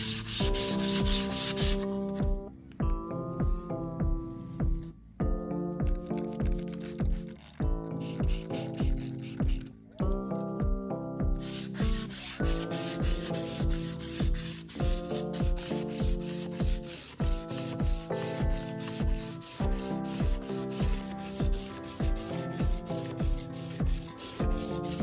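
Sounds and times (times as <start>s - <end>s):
sandpaper scraping knife blade: 0.0s - 2.3s, 6.2s - 9.7s, 11.4s - 25.0s
background music with steady beat: 0.0s - 25.0s.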